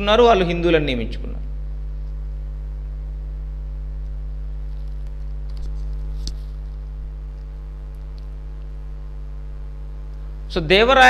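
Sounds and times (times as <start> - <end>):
electrical mains hum: 0.0 - 11.0
faint clicks: 4.8 - 8.8.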